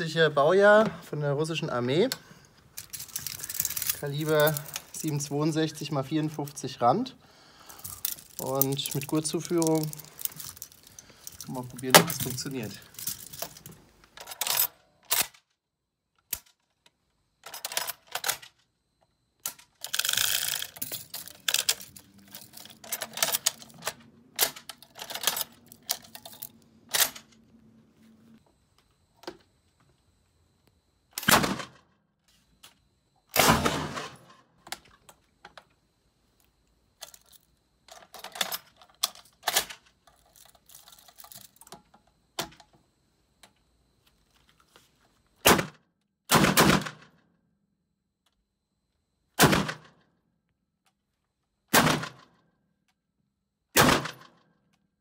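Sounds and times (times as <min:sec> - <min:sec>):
machine gun being loaded: 0:02.7 - 0:05.5, 0:07.7 - 0:15.6, 0:17.4 - 0:18.7, 0:19.4 - 0:27.4, 0:37.0 - 0:41.8, 0:53.8 - 0:54.4.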